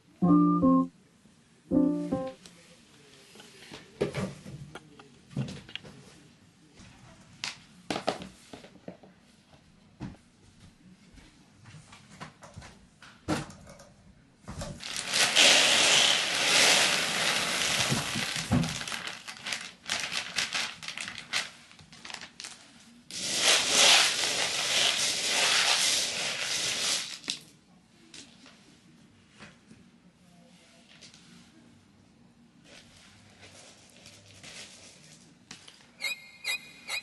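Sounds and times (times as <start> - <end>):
litter pellets pouring into tray: 14.8 - 20.7, 23.1 - 27.3
bag crinkling: 14.8 - 22.6
pellets rattling: 14.8 - 27.3.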